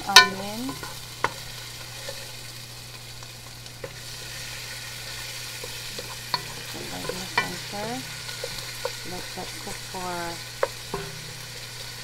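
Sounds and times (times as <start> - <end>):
garlic and onion sizzling in oil: 0.0 - 12.0
spatula knocking against pan: 10.6 - 11.5.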